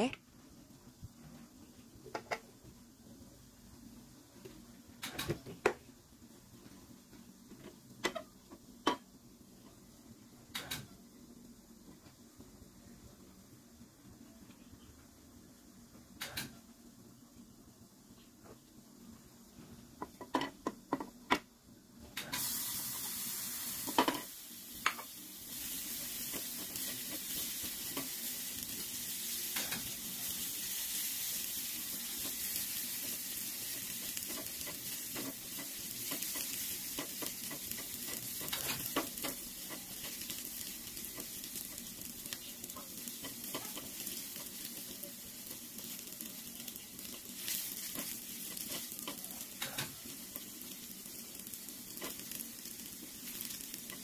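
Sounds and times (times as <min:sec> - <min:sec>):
pork sizzling in a pan: 0:04.6 - 0:11.0, 0:19.0 - 0:21.4, 0:22.1 - 0:54.0
spatula scraping and stirring: 0:31.9 - 0:46.3, 0:46.9 - 0:50.8.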